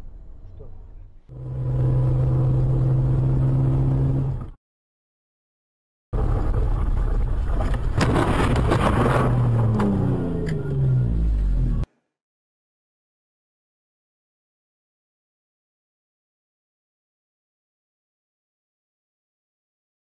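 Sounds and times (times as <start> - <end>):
driving road noise: 0.0 - 4.6, 6.2 - 11.9
vehicle engine: 0.0 - 4.6, 6.2 - 11.9.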